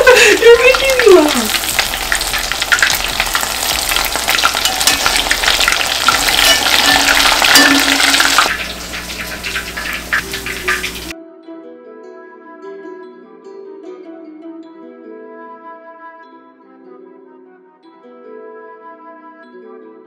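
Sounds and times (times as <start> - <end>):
shrimp sizzling in hot oil: 0.0 - 11.2
metal utensil stirring pot: 1.5 - 11.1.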